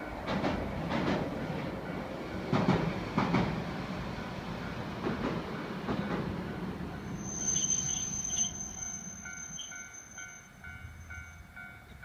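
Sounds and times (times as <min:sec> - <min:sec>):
tram rumbling over bridge: 0:00.0 - 0:12.0
wheel squeal: 0:07.0 - 0:10.5
level crossing alarm ringing: 0:07.0 - 0:11.7.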